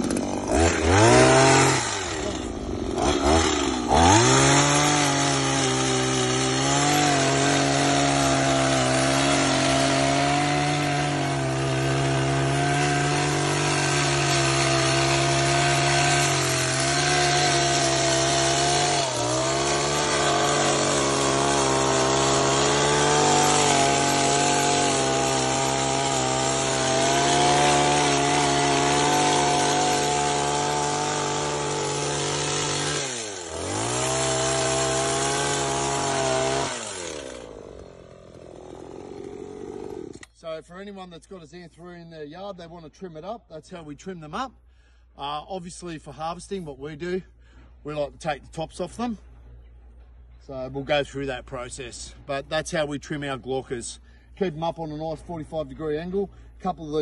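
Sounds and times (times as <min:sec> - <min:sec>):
chainsaw cutting dry leaves: 0:00.0 - 0:40.4.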